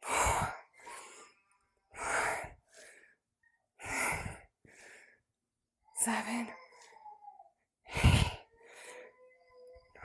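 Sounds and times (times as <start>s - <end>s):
woman breathing hard: 0.0s - 5.4s, 7.9s - 9.2s.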